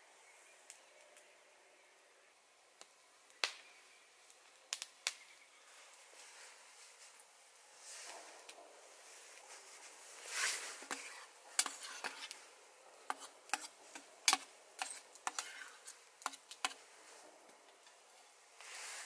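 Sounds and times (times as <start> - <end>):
metal spoon scraping a pot: 10.8 - 12.4, 13.1 - 16.8.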